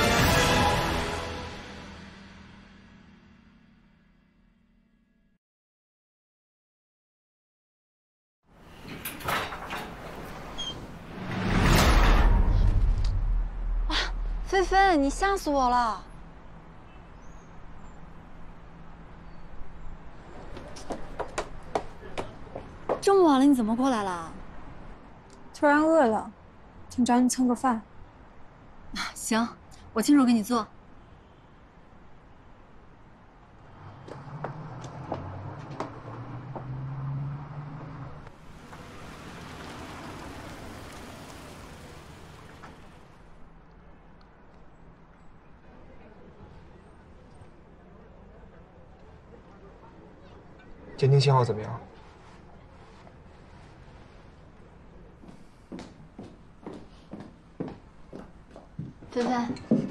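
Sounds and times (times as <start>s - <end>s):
rushing traffic noise: 8.5s - 25.6s, 26.2s - 58.7s
low engine hum: 33.6s - 43.5s.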